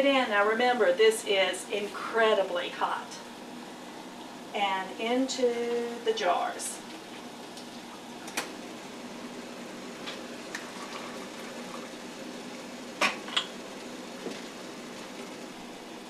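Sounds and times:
jelly bubbling in a pot: 6.8s - 16.0s.

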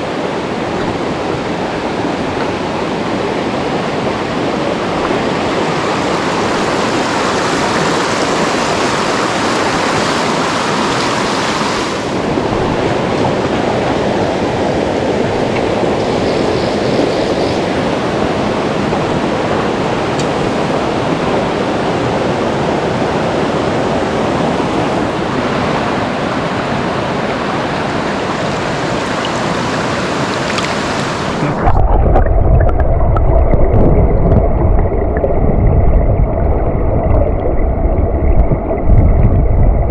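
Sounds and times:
stream rushing over boulders: 0.0s - 39.9s
muffled underwater rumble: 31.3s - 39.9s.

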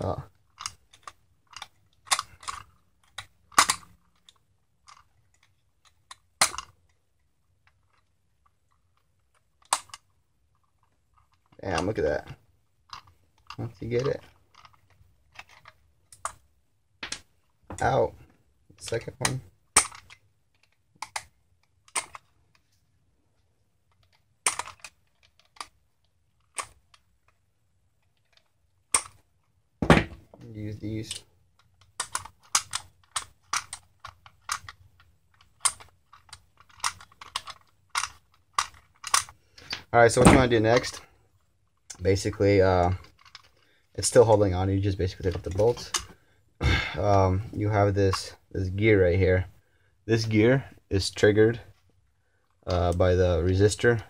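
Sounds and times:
pliers clicking and knocking on bolt: 28.3s - 29.2s, 31.1s - 34.8s, 35.4s - 41.0s.

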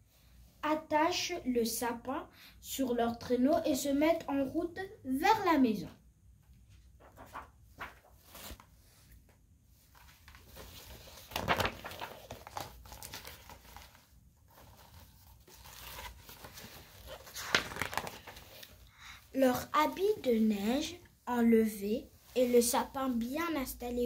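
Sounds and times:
paper pages rustling: 6.5s - 18.9s.

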